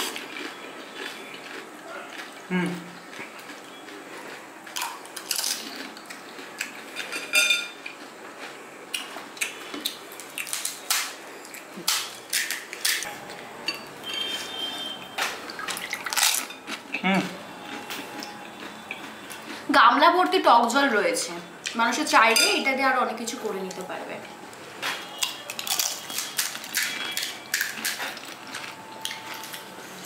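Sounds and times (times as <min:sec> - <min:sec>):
crisp shells cracking and crunching: 0:04.7 - 0:06.8, 0:09.8 - 0:13.1, 0:15.6 - 0:16.8, 0:24.8 - 0:29.7
spoons clinking against glass bowls: 0:07.0 - 0:07.8, 0:13.6 - 0:14.9, 0:22.3 - 0:22.7.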